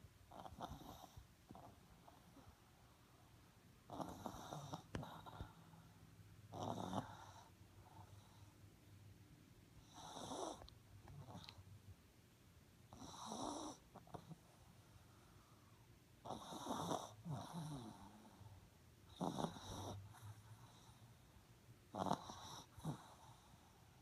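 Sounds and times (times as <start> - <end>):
dog snoring: 0.3 - 2.5, 3.9 - 5.8, 6.5 - 8.5, 9.8 - 11.6, 12.9 - 14.7, 16.2 - 21.2, 21.9 - 23.8.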